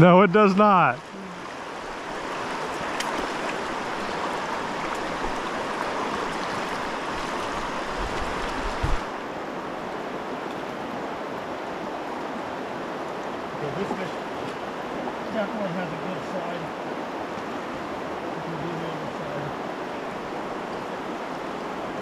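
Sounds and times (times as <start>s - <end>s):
river current rushing: 0.0s - 22.0s.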